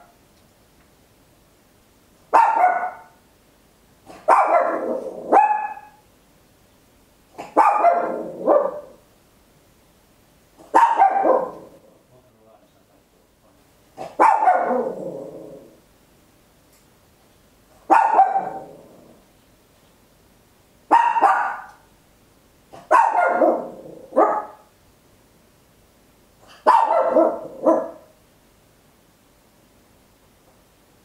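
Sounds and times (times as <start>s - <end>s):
small dog barking: 2.3s - 3.2s, 4.1s - 6.0s, 7.4s - 9.0s, 10.6s - 11.8s, 14.0s - 15.6s, 17.8s - 18.8s, 20.9s - 21.9s, 22.7s - 24.7s, 26.4s - 28.2s.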